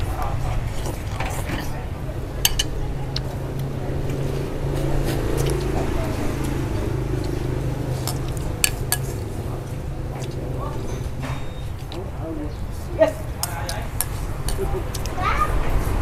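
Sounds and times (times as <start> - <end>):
background chatter: 0.0 - 16.0
utensils clinking on ceramic bowls: 2.4 - 3.4, 8.0 - 12.1.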